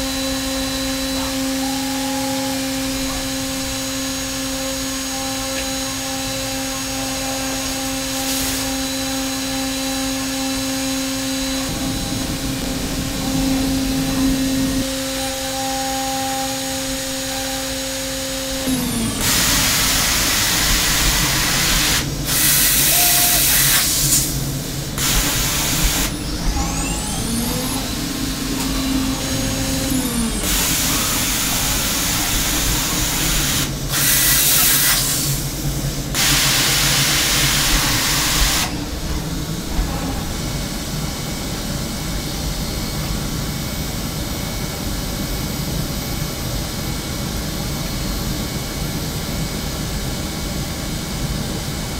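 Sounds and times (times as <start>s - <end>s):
milling spindle whine: 0.0s - 43.8s
hissing air blasts: 18.6s - 40.7s.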